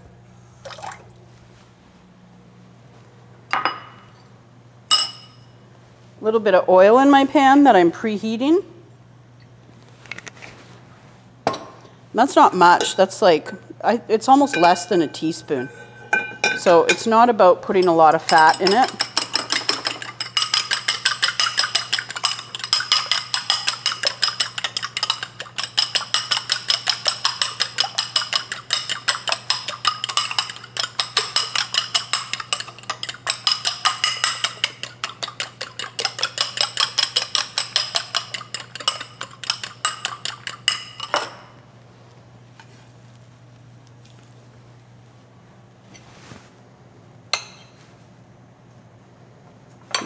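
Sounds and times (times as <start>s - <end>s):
fork clinking against bowl: 14.5s - 17.1s, 17.8s - 41.4s.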